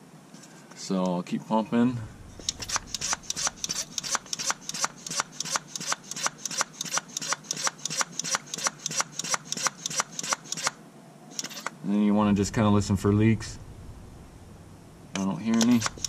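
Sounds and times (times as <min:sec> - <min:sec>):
hand pump clicking and hissing: 0:02.4 - 0:10.8, 0:11.4 - 0:11.7, 0:15.2 - 0:16.0.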